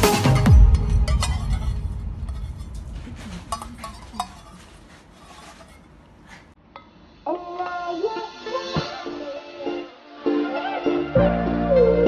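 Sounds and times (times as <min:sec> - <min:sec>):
low rumble: 0:00.5 - 0:04.8.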